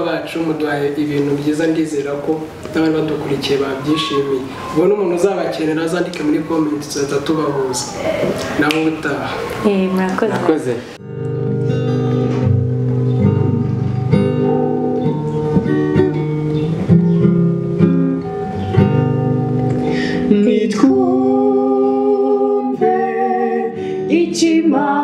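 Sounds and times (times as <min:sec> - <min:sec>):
acoustic guitar strumming: 0:00.0 - 0:25.0
person singing: 0:19.9 - 0:25.0.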